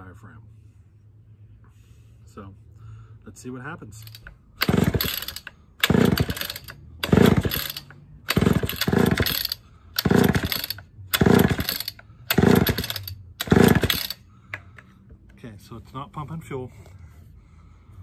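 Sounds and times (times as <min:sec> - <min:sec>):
chainsaw engine turning over: 0:04.0 - 0:14.2
chainsaw starter rope whirring: 0:04.0 - 0:14.2.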